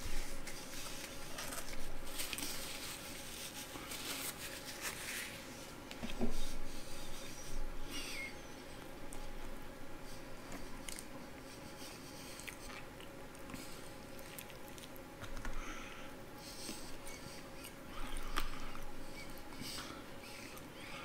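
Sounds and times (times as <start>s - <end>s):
wet chewing: 10.5s - 15.6s.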